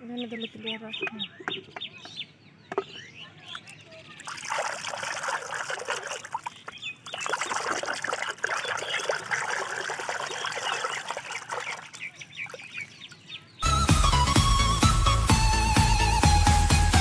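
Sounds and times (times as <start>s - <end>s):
water splashing in tub: 3.5s - 13.0s.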